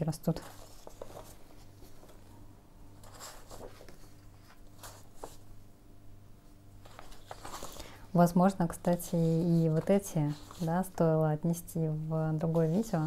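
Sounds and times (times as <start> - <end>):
paper pages rustling: 0.3 - 2.3, 3.0 - 5.5, 6.8 - 8.0, 8.6 - 11.0.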